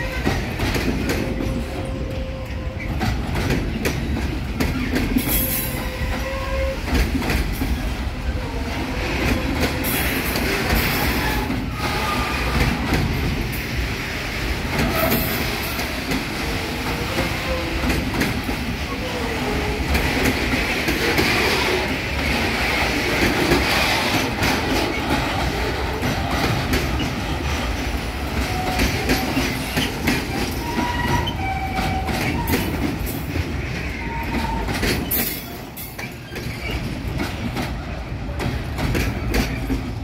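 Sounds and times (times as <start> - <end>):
train wheels rumbling on rails: 0.0 - 40.0.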